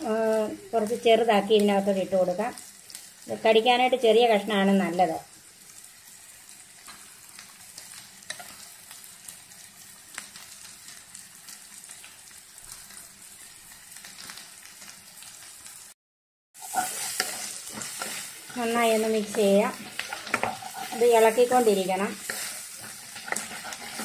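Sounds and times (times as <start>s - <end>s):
onions sizzling in oil: 0.0s - 16.0s, 16.6s - 24.0s
spatula stirring pan: 6.8s - 9.6s, 16.6s - 24.0s.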